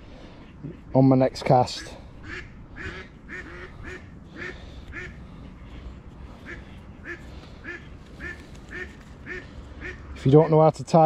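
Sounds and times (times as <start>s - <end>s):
duck quacking: 1.7s - 5.8s, 6.4s - 10.5s.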